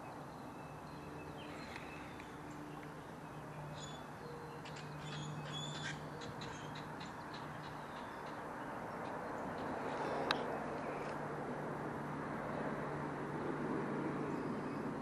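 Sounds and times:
birds calling: 0:00.0 - 0:11.2
river flowing: 0:06.8 - 0:13.2.

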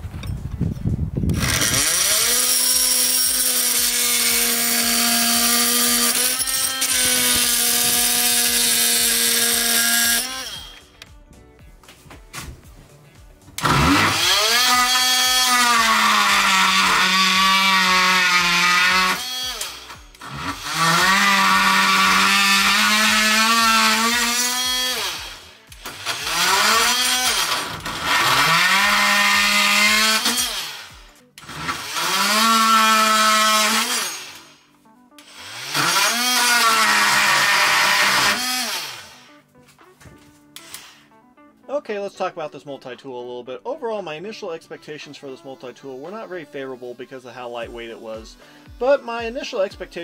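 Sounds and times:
oscillating multi-tool cutting wood: 0:01.3 - 0:11.1, 0:13.6 - 0:39.4, 0:40.6 - 0:41.1.

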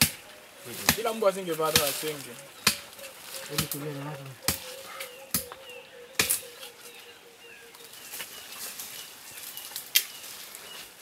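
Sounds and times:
faint bird chirps: 0:02.0 - 0:10.9.

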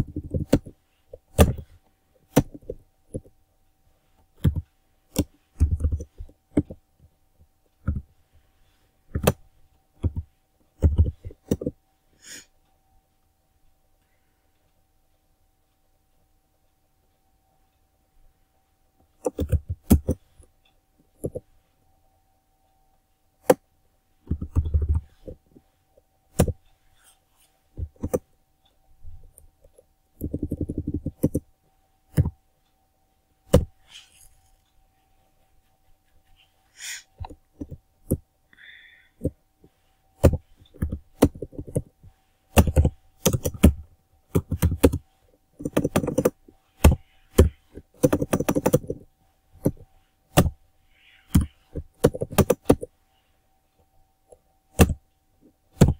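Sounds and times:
keyboard typing: 0:00.0 - 0:03.4, 0:04.1 - 0:12.4, 0:19.0 - 0:21.6, 0:24.2 - 0:25.6, 0:26.3 - 0:32.5, 0:33.4 - 0:34.7, 0:35.4 - 0:52.9, 0:54.3 - 0:55.0
faint high hum: 0:00.0 - 0:55.9.

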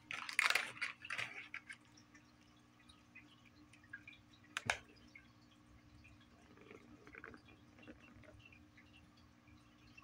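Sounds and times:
plastic ball rattling in track: 0:00.0 - 0:01.6
faint low hum: 0:00.0 - 0:10.0.

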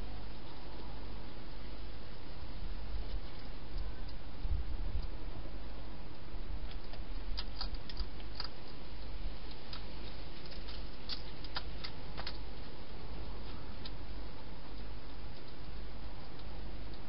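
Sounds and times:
low hum: 0:00.0 - 0:17.0
hedgehog eating clicks and crunches: 0:06.1 - 0:17.0.

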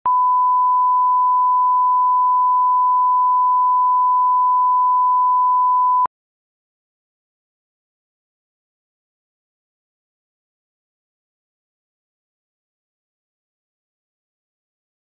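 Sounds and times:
steady test tone beep: 0:00.1 - 0:06.1.

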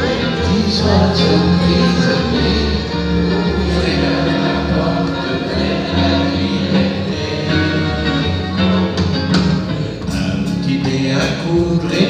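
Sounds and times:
bass notes: 0:00.0 - 0:12.0
live pop band playing: 0:00.0 - 0:12.0.

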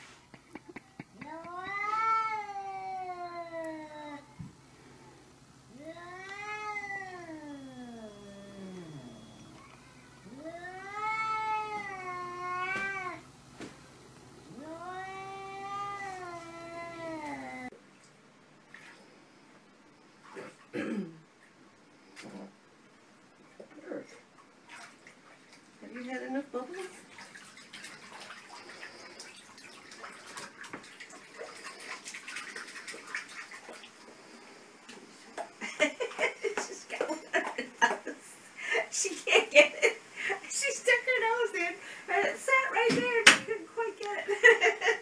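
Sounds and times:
cat yowling: 0:01.2 - 0:04.3, 0:05.8 - 0:13.2, 0:14.5 - 0:17.7
small water splashes: 0:24.3 - 0:25.7, 0:26.6 - 0:34.0.

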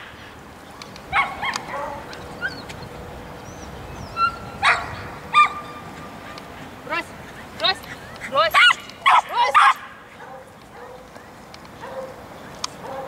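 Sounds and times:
dog barking in high yips: 0:01.1 - 0:02.6, 0:04.2 - 0:06.4, 0:08.5 - 0:11.1.

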